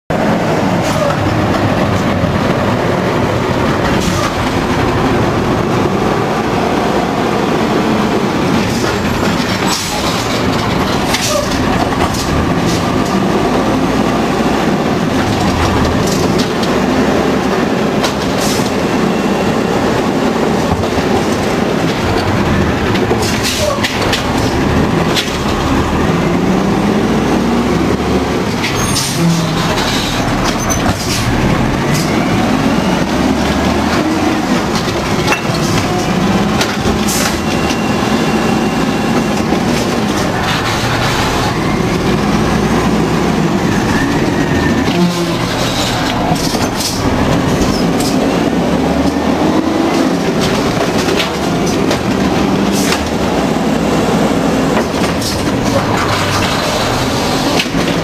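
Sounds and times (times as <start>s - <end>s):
garbage truck engine and hydraulics: 0.1s - 58.0s
trash cans clanking and banging: 8.4s - 13.5s, 28.5s - 41.0s.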